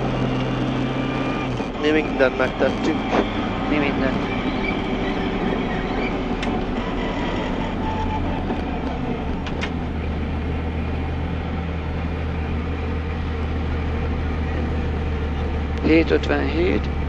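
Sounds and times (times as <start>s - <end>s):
car engine running: 0.0s - 17.0s.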